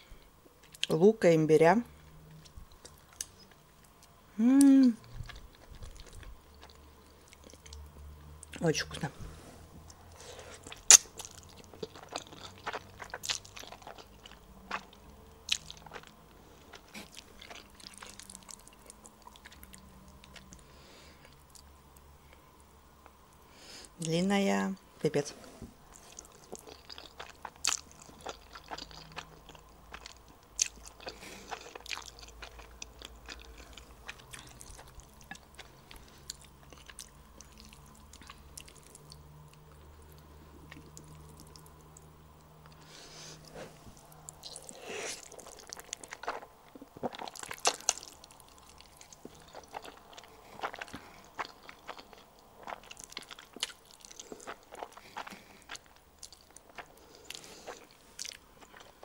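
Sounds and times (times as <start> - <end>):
noodles slurped and chewed: 10.3 - 16.1, 25.9 - 39.2, 42.7 - 59.0.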